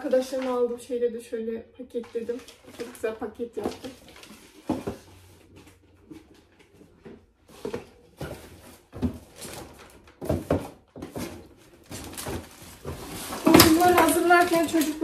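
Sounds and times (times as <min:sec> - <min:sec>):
packages rustling: 0:02.0 - 0:15.0.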